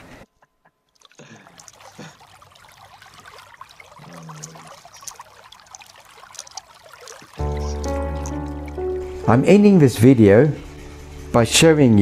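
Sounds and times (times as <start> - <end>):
water trickling: 0.9 - 11.2
wet gravel rattling in a sieve: 1.5 - 8.6.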